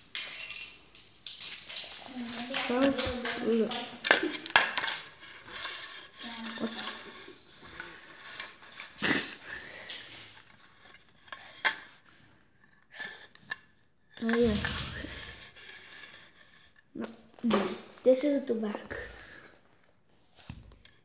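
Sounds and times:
plastic pieces clicking on floor: 0:00.0 - 0:11.9, 0:14.2 - 0:15.6.

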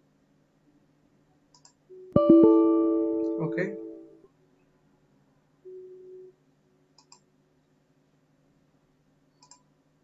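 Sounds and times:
faint computer mouse clicks: 0:01.5 - 0:01.8, 0:07.0 - 0:07.2, 0:09.4 - 0:09.7.

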